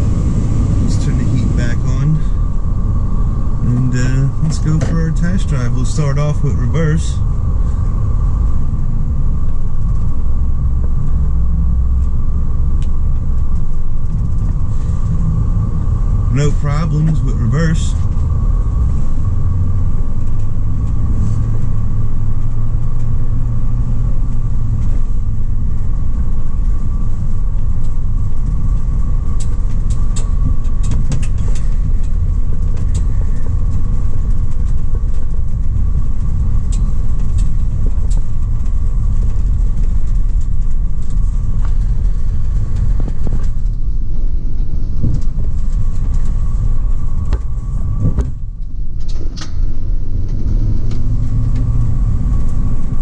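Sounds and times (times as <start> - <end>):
engine and road rumble: 0.0 - 53.0
mid-pitched hum: 0.0 - 53.0
light clicks and rattles: 26.6 - 43.8.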